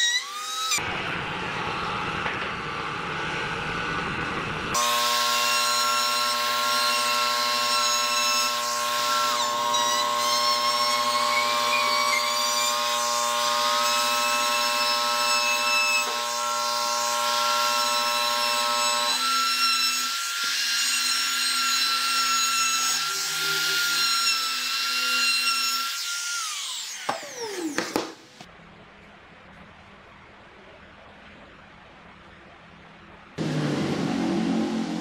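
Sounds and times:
router high whine: 0:04.7 - 0:10.2, 0:33.4 - 0:35.0
router winding down: 0:33.4 - 0:35.0.

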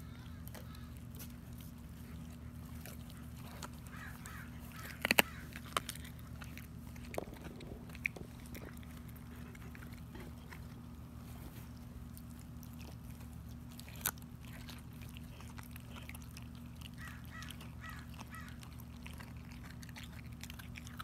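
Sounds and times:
dog chewing meat: 0:00.0 - 0:21.0
steady low hum: 0:00.0 - 0:21.0
bone cracking between teeth: 0:02.8 - 0:10.4.

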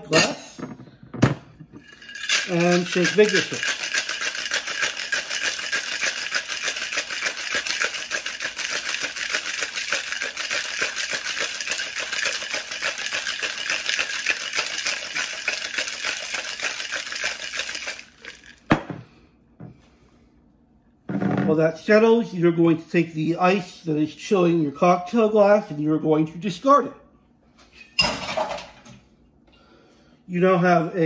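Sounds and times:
ice rattling in cocktail shaker: 0:01.8 - 0:18.7.

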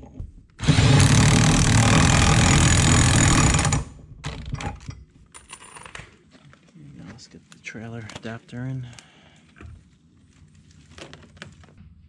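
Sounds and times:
pneumatic impact wrench hammering: 0:00.6 - 0:03.9.

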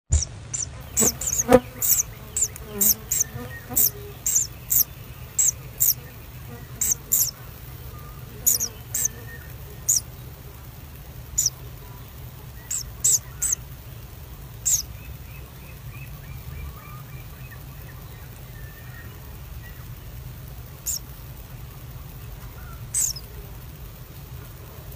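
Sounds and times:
high-pitched bird chirps: 0:00.1 - 0:06.0, 0:06.7 - 0:07.4, 0:08.0 - 0:10.1, 0:11.4 - 0:11.6, 0:12.6 - 0:13.6, 0:14.6 - 0:15.0, 0:20.8 - 0:21.0, 0:22.9 - 0:23.3
low steady hum: 0:00.1 - 0:24.9.

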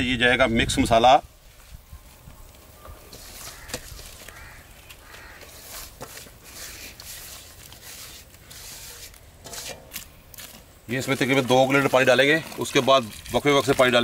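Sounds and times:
birds calling: 0:02.2 - 0:06.9
gloved hand scraping spice mix: 0:02.9 - 0:14.0.

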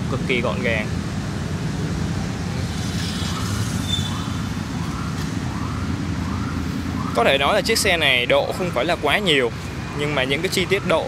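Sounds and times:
street traffic rumble: 0:00.0 - 0:11.0
faint rising and falling whistles: 0:03.2 - 0:07.2.

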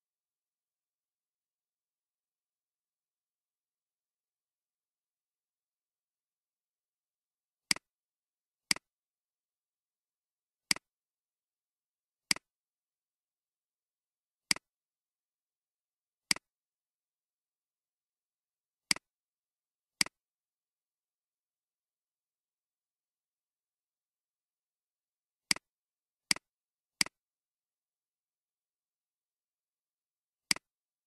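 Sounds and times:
computer mouse clicks: 0:14.5 - 0:14.7, 0:30.5 - 0:30.7.

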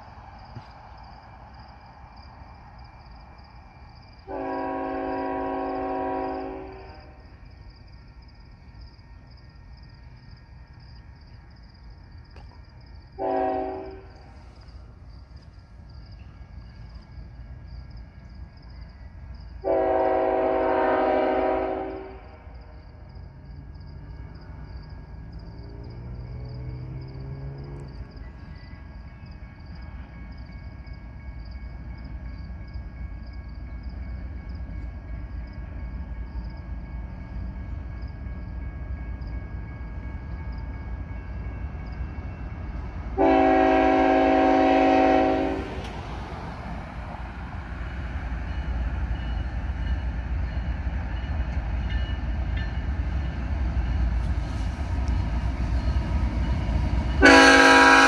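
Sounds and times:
locomotive rumble: 0:00.0 - 0:58.0
locomotive horn blasts: 0:04.3 - 0:07.2, 0:13.2 - 0:14.3, 0:19.6 - 0:22.4, 0:43.2 - 0:45.8, 0:57.2 - 0:58.0.

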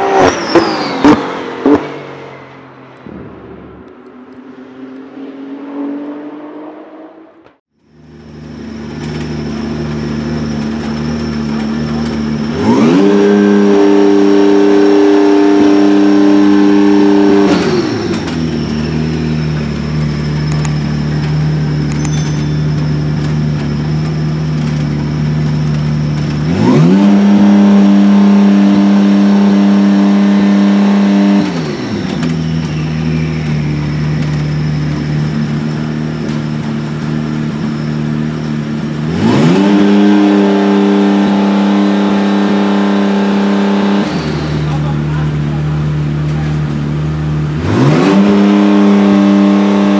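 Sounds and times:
car passing on track: 0:00.0 - 0:07.5
race car engine idling and revving: 0:00.0 - 0:49.9
thin high whine: 0:21.9 - 0:24.0.

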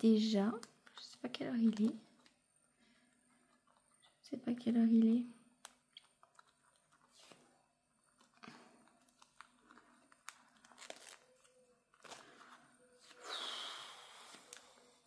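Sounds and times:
zip pouch clicking and crinkling: 0:05.6 - 0:12.3.

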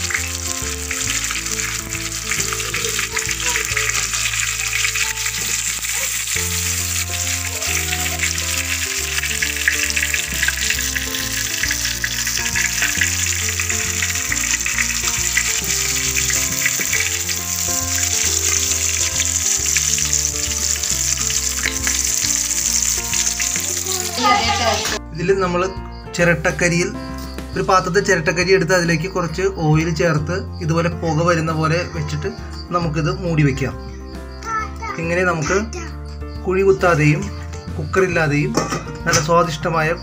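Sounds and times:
oil sizzling in a pan: 0:00.0 - 0:25.0, 0:29.9 - 0:40.0
background music: 0:00.0 - 0:40.0.

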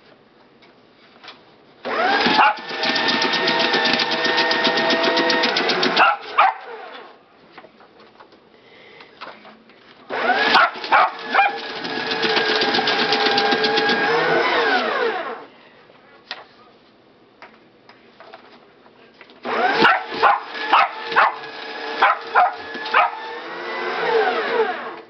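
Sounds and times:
paper shredder cutting paper: 0:01.9 - 0:07.1, 0:10.1 - 0:15.5, 0:19.4 - 0:25.0.

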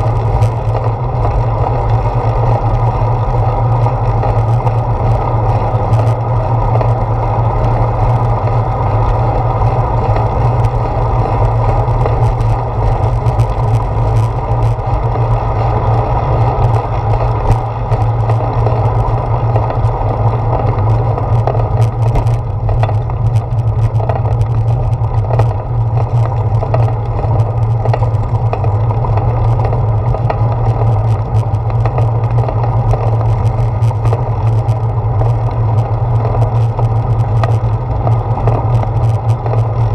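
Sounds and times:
deep steady hum: 0:00.0 - 0:39.9
wind noise: 0:00.0 - 0:39.9
small knocks and rattles: 0:20.5 - 0:34.6.

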